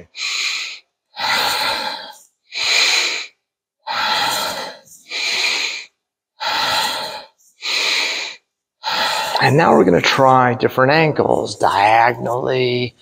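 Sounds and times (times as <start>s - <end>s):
man breathing hard and fast: 0.0s - 9.7s.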